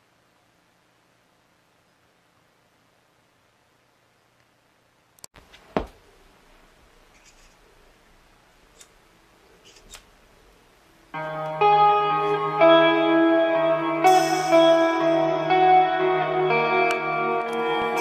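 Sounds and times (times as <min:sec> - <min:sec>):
guitar music: 0:11.2 - 0:18.0.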